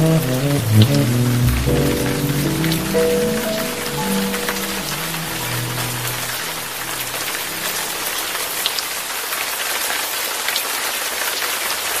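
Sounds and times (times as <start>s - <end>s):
jazz ballad low notes: 0.0s - 8.2s
steady rain falling: 0.0s - 12.0s.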